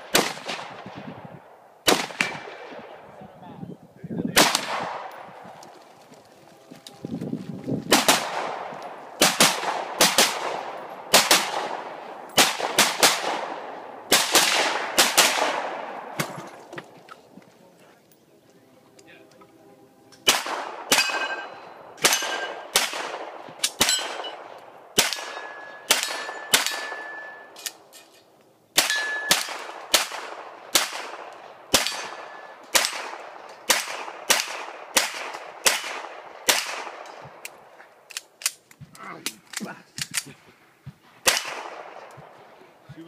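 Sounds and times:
pistol shots: 0.0 - 1.0, 1.8 - 2.8, 4.4 - 5.4, 7.9 - 16.6, 20.2 - 27.6, 28.8 - 37.6, 41.2 - 42.4.

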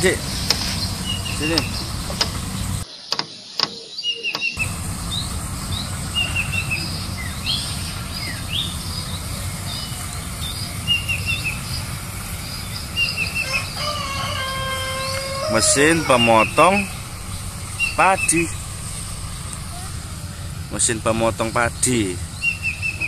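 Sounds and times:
distant combine harvester rumble: 0.0 - 2.8, 4.6 - 23.0
small birds chirping: 0.0 - 23.0
steady humming tone: 4.6 - 23.0.

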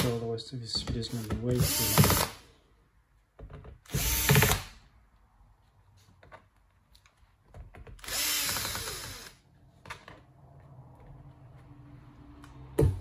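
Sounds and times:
electric screwdriver whirring: 8.0 - 9.4.

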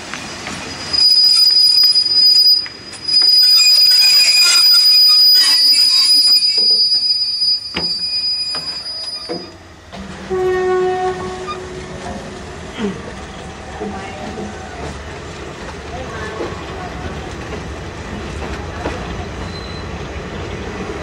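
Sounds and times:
train wheels squealing on rails: 0.3 - 11.9, 18.8 - 21.0.

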